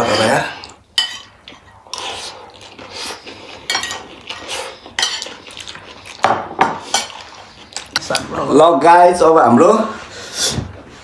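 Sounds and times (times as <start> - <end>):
metal spoons clinking on plates: 1.0 - 1.7, 3.7 - 5.4.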